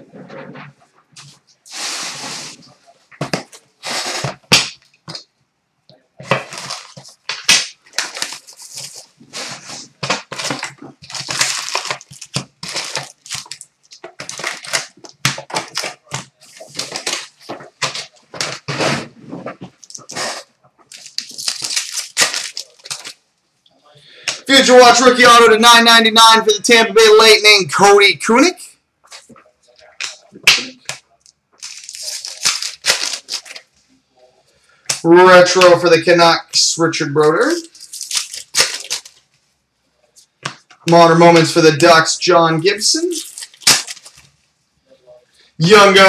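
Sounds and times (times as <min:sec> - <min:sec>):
card pack wrappers tearing: 0:06.3 - 0:18.8, 0:19.8 - 0:23.2, 0:31.6 - 0:33.7, 0:37.5 - 0:39.2, 0:43.0 - 0:44.2.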